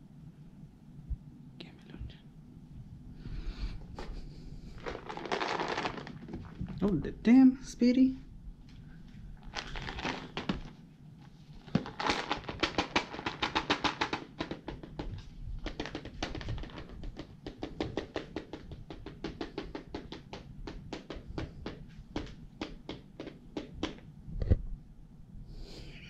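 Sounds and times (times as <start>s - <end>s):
treats rattling in shaken tub: 4.8s - 7.0s, 9.4s - 10.8s, 11.6s - 18.8s.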